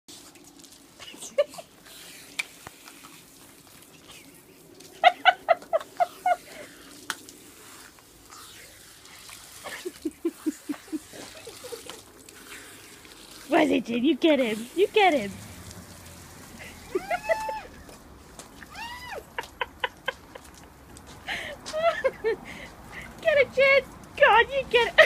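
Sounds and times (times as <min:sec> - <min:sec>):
hose spraying: 0:00.1 - 0:20.9.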